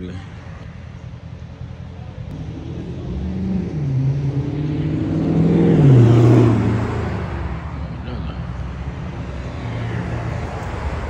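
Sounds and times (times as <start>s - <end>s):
car engine passing by: 2.3s - 11.0s.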